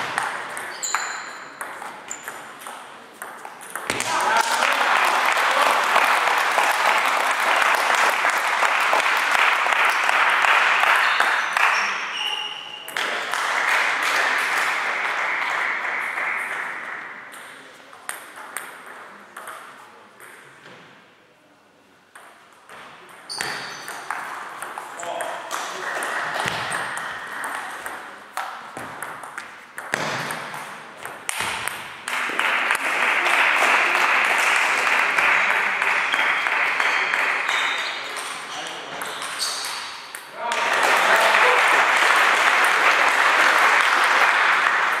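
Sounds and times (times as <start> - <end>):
spectators applauding: 4.1 - 11.9, 13.0 - 16.8, 32.1 - 37.7, 40.4 - 45.0.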